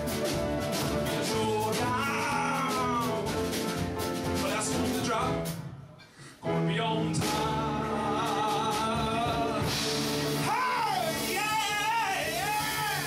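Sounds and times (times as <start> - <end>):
man singing: 1.0 - 3.7, 4.4 - 5.6, 6.4 - 13.0
piano chords: 6.4 - 12.9.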